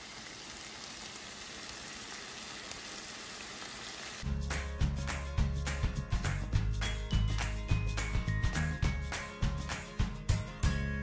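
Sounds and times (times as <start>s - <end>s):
vegetables sizzling in a frying pan: 0.0s - 4.2s
music with a strong beat: 4.2s - 11.0s.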